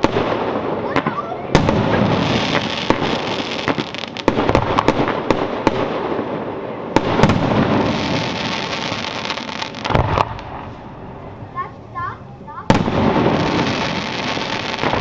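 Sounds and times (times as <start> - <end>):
fireworks bangs: 0.0 - 15.0
fireworks crackling: 0.0 - 15.0.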